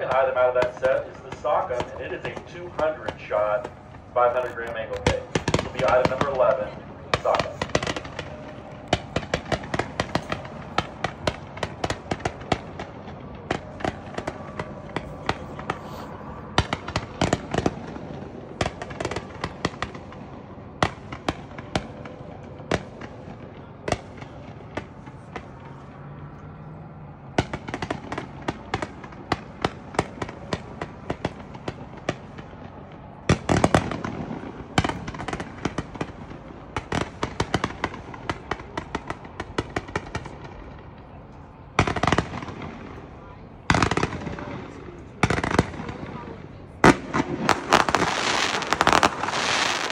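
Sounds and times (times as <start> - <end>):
fireworks shots and pops: 0.0 - 25.8, 33.3 - 40.6, 43.7 - 49.9.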